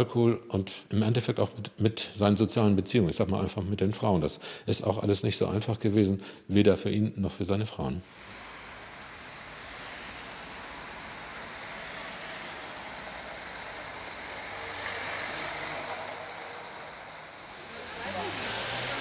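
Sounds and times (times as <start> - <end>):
cars driving past: 8.0 - 19.0.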